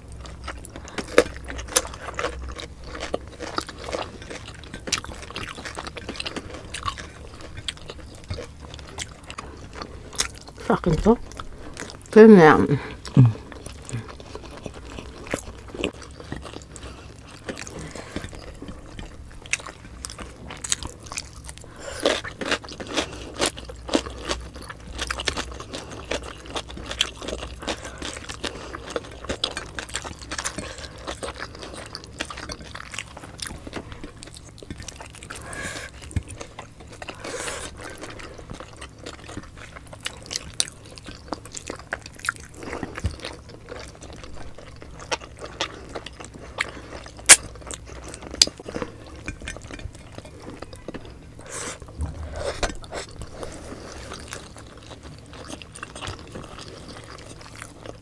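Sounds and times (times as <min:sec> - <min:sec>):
chewing and biting food: 0:00.0 - 0:12.2, 0:12.8 - 0:58.0
faint room hum: 0:00.0 - 0:58.0
mouth clicks and crunches: 0:13.0 - 0:58.0.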